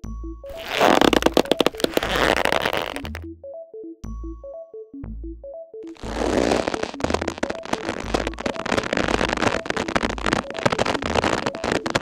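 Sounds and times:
rope creaking under tension: 0.5 - 3.2, 5.9 - 12.0.

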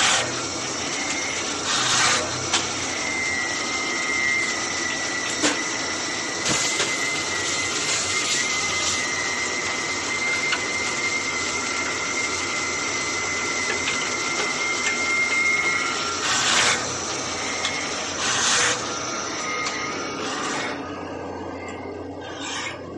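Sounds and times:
drilling machine running: 0.0 - 22.9.

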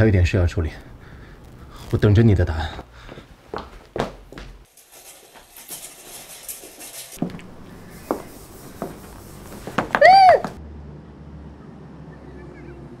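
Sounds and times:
woman's muffled cry: 10.0 - 10.6.

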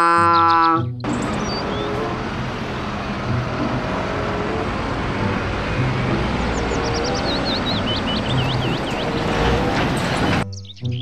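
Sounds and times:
bird chirps: 0.0 - 2.0, 6.5 - 9.5, 10.4 - 11.0
bus engine running: 0.0 - 11.0
road traffic noise: 0.0 - 11.0.

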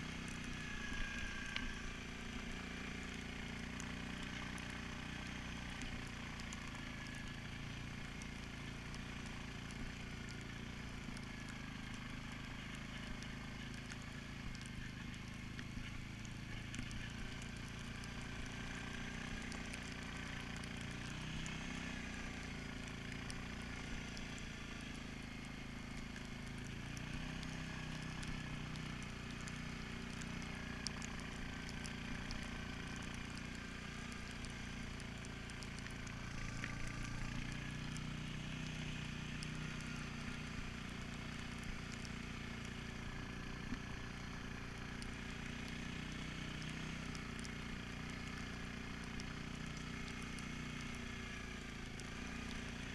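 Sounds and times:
atv engine running: 0.0 - 52.9.

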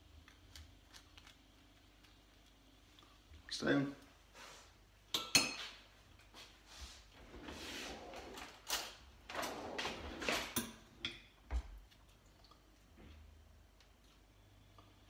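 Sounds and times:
drawer sliding: 7.2 - 10.8.

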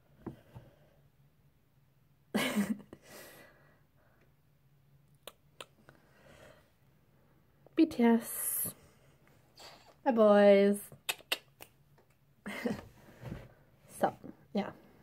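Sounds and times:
faint steady hum: 0.0 - 15.0
soft breath: 5.8 - 7.5.

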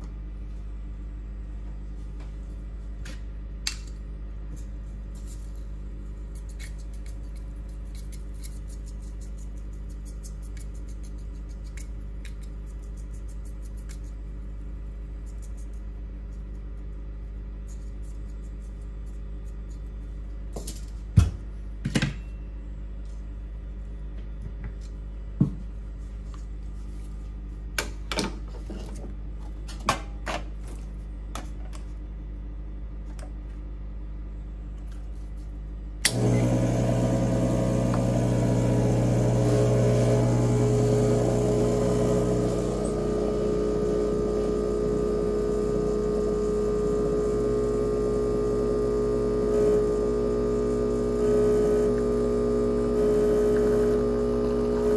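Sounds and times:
espresso machine pump buzz: 36.1 - 54.9.

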